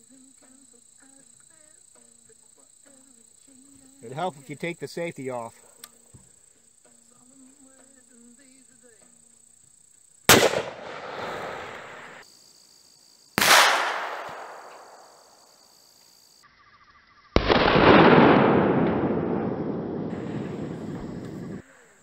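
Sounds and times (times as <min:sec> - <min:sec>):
rifle shots with echo: 0:10.3 - 0:12.2, 0:13.4 - 0:15.0, 0:17.4 - 0:21.6.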